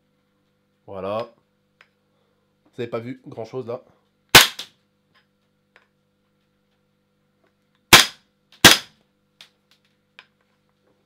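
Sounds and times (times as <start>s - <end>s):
airsoft pistol shots: 4.3s - 4.7s, 7.9s - 9.0s.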